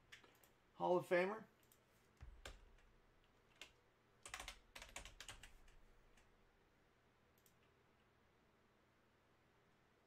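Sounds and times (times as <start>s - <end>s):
keyboard typing: 1.6s - 6.3s.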